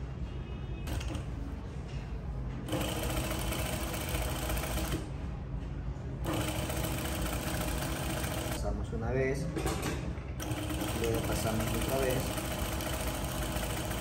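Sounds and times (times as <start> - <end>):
sewing machine stitching: 2.7 - 5.0, 6.2 - 8.6, 10.4 - 14.0.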